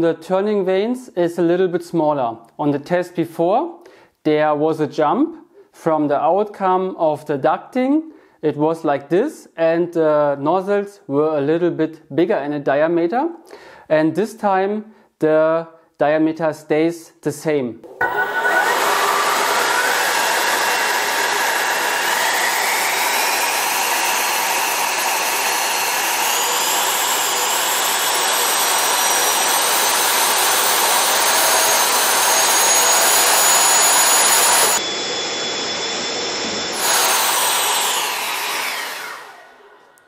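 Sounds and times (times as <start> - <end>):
electric ducted fan whine: 18.0 - 40.0.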